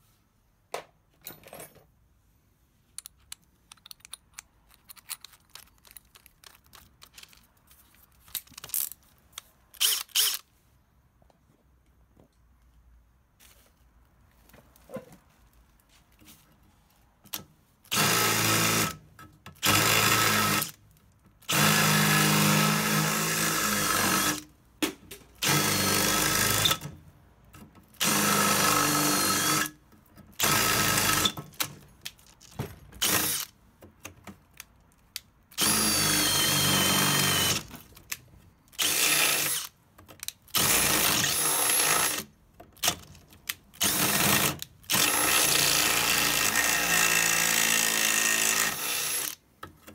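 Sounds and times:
electric drill boring through metal: 21.5 - 24.4, 25.4 - 26.8, 28.0 - 29.7, 35.6 - 37.7, 38.8 - 39.7, 43.8 - 49.4.

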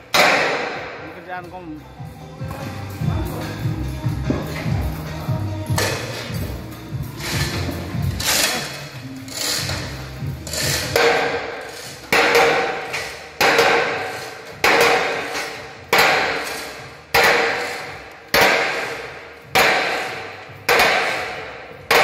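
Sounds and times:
hammer striking steel plate: 0.1 - 1.1, 10.5 - 22.0.

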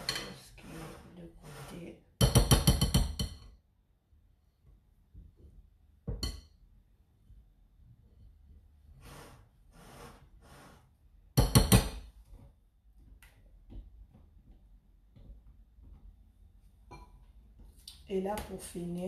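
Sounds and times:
spatula stirring cake batter: 0.0 - 3.5, 8.9 - 11.0
spatula knocking glass bowl: 2.2 - 3.5.

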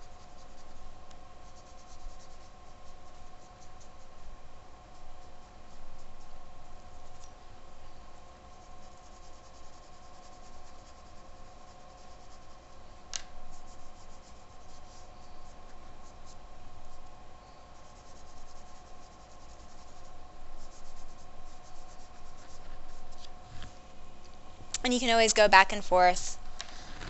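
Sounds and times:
pastel scraping on paper: 0.0 - 0.8, 1.4 - 4.3, 8.5 - 12.8, 13.5 - 17.1, 17.7 - 23.8, 26.2 - 27.0
steady hum: 0.0 - 27.0
fingertips rubbing paper: 1.4 - 4.3, 8.5 - 12.8, 13.5 - 17.1, 17.7 - 23.8, 26.0 - 27.0.

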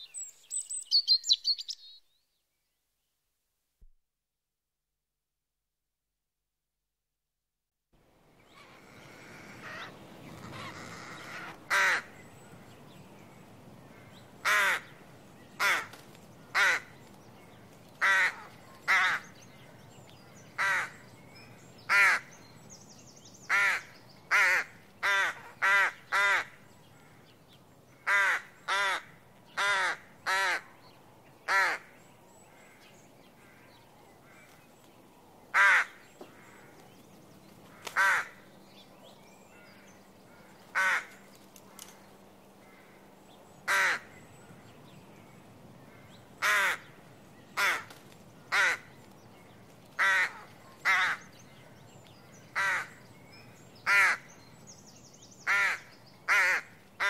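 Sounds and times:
rook cawing: 8.5 - 12.2, 13.8 - 17.0, 18.0 - 19.4, 20.5 - 21.1, 21.9 - 22.4, 23.5 - 30.7, 31.4 - 34.6, 35.5 - 36.8, 37.6 - 38.5, 39.5 - 41.3, 42.6 - 44.3, 45.8 - 49.0, 50.0 - 51.4, 52.5 - 53.1, 53.8 - 54.4, 55.4 - 57.0.

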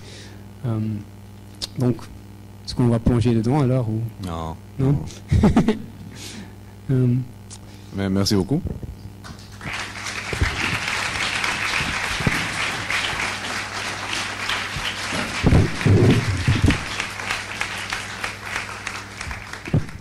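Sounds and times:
audience applauding: 9.4 - 20.0.

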